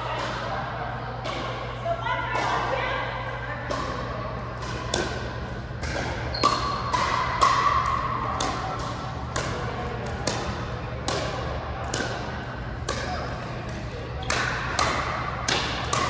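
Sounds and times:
ball bouncing on court floor: 0:03.6 - 0:16.0
paddles hitting plastic ball: 0:03.7 - 0:16.0.

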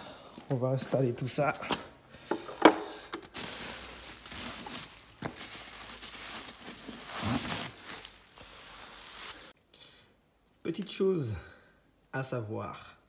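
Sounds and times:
bubble wrap and cardboard crinkling: 0:03.2 - 0:09.6.

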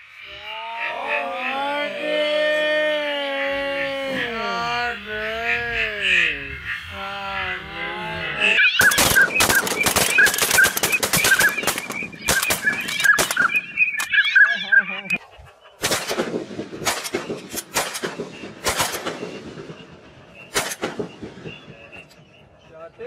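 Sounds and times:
duck calls: 0:00.0 - 0:16.2
shotguns firing: 0:08.8 - 0:14.2, 0:15.8 - 0:22.4.

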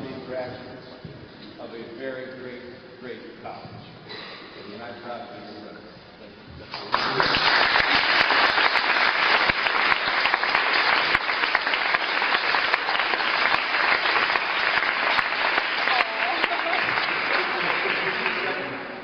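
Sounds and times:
audience applauding: 0:06.8 - 0:19.0.

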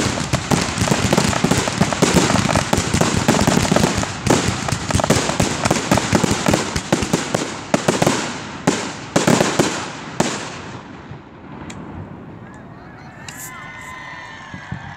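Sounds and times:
fireworks bangs and crackling: 0:00.0 - 0:13.5.

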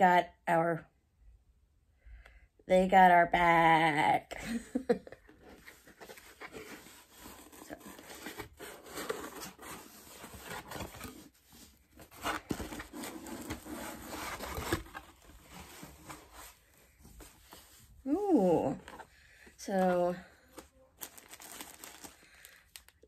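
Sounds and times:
tissue paper rustling: 0:05.4 - 0:19.1, 0:19.7 - 0:23.0.

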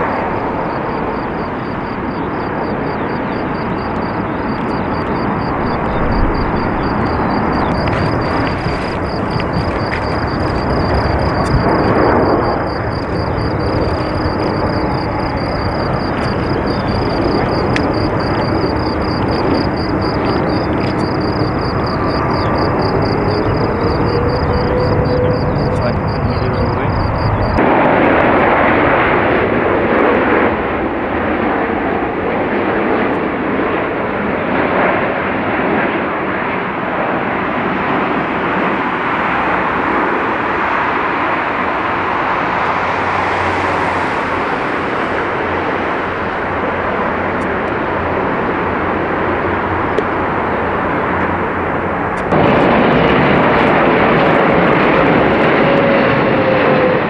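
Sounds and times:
jet airliners engine roar: 0:00.0 - 0:57.0.

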